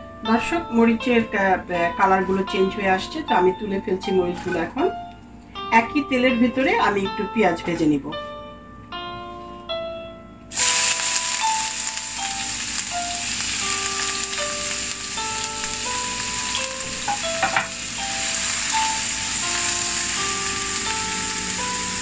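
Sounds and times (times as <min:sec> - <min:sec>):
light background music: 0:00.0 - 0:22.0
onions sizzling in oil: 0:10.5 - 0:22.0.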